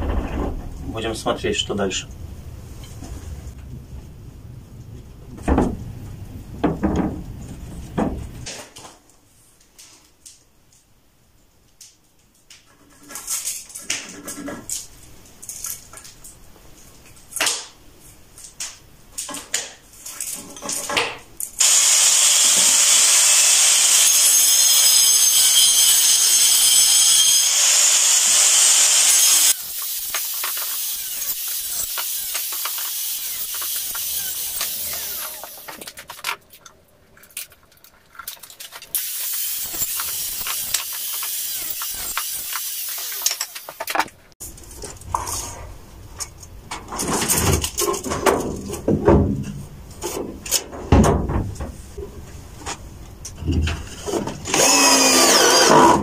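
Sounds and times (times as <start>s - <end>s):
angle grinder cutting wood: 21.6s - 36.4s, 38.9s - 44.1s, 54.4s - 56.0s.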